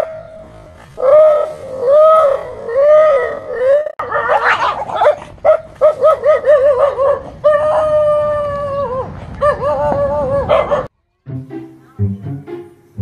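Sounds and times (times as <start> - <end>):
dog howling: 1.0 - 4.8, 5.8 - 10.9.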